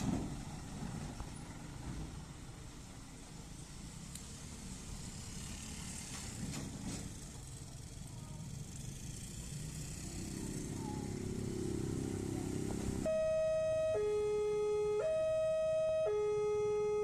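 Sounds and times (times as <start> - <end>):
small motorcycle engines: 3.1 - 14.0.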